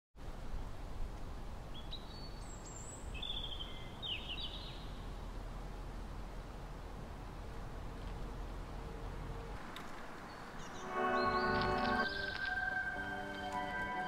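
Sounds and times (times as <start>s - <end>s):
low outdoor rumble: 2.4s - 14.0s
bird chirps and trills: 10.3s - 13.2s.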